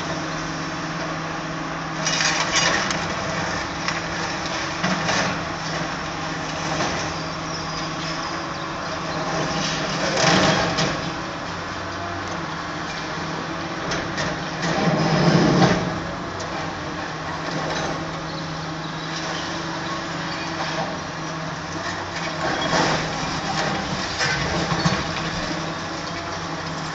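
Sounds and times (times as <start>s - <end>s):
diesel engine running: 0.0s - 26.9s
concrete breaking and debris clattering: 2.0s - 5.8s, 21.8s - 26.9s.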